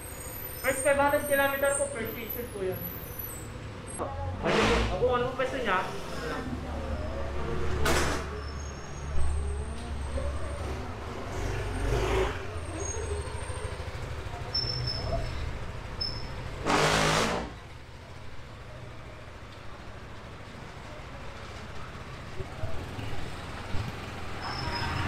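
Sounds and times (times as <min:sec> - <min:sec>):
scooter engine running: 0:10.2 - 0:16.5.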